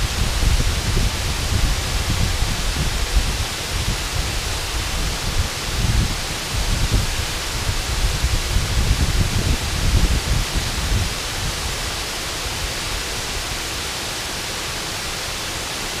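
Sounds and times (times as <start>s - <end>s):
waterfall rushing onto rocks: 0.0s - 16.0s.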